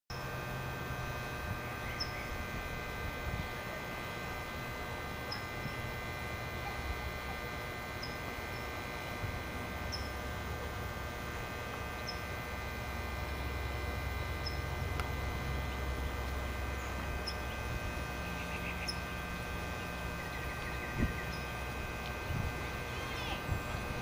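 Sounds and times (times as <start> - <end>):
low steady hum: 0.1 - 24.0
small birds chirping: 1.7 - 2.4, 16.2 - 24.0.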